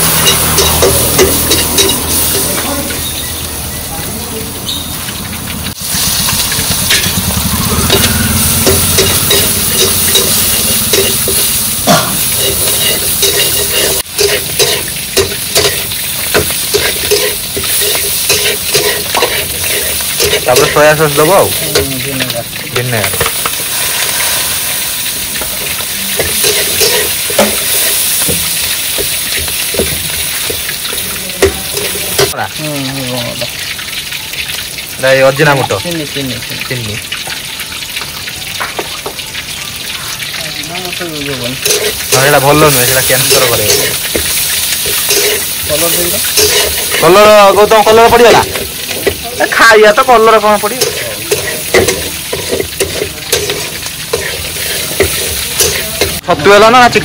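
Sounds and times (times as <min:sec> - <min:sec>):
food sizzling in oil: 0:00.0 - 0:57.0
spatula scraping pan: 0:07.8 - 0:32.4, 0:41.6 - 0:56.2.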